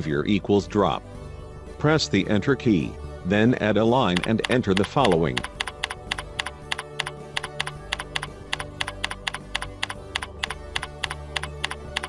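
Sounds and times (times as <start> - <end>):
faint background music: 0.0 - 12.0
typing on computer keyboard: 4.2 - 12.0.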